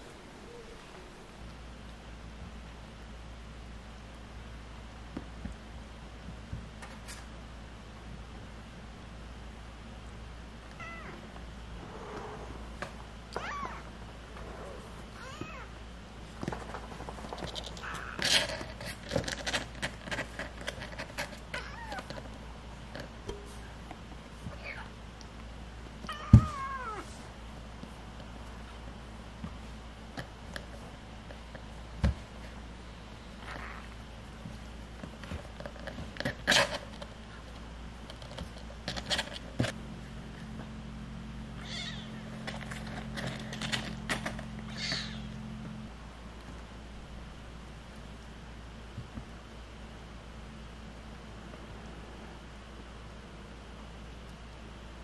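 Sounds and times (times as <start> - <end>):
kitten mewing: 10.8 - 11.3, 13.3 - 14.0, 14.6 - 15.8, 41.6 - 42.2, 44.7 - 45.4
kittens mewing: 10.8 - 15.8, 17.7 - 18.8, 26.1 - 27.1, 41.6 - 42.3, 44.6 - 45.4
kittens scratching in cardboard box: 16.4 - 23.1, 33.4 - 39.8, 42.2 - 45.3.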